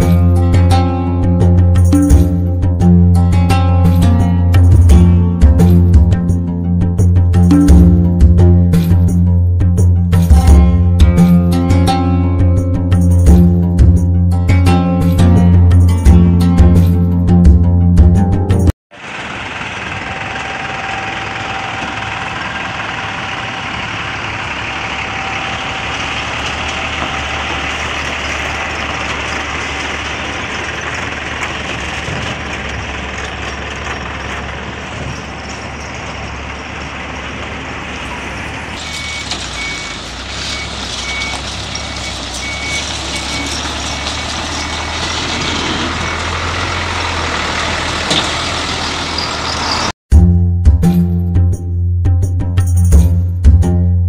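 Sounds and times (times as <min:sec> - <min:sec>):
diesel truck engine droning: 0:00.0 - 0:50.0
high electronic beeping: 0:38.4 - 0:43.6.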